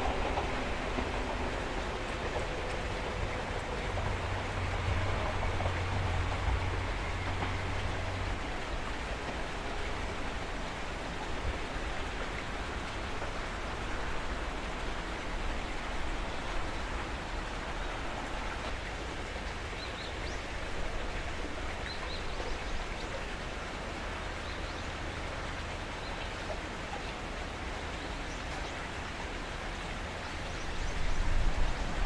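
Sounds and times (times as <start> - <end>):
wind rumbling on microphone: 30.6 - 32.0.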